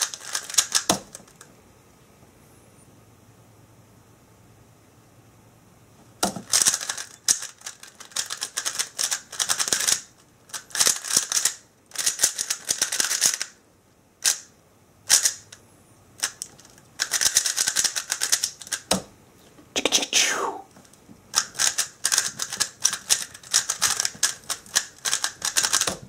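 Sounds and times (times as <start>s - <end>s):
plastic puzzle cube clicking: 0.0s - 1.4s, 6.4s - 13.5s, 16.2s - 18.9s, 21.3s - 26.0s.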